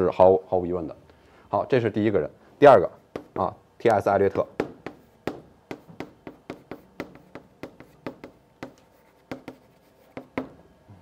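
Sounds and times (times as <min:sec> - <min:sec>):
chalk tapping and scraping on blackboard: 0:03.1 - 0:04.0, 0:04.6 - 0:10.6.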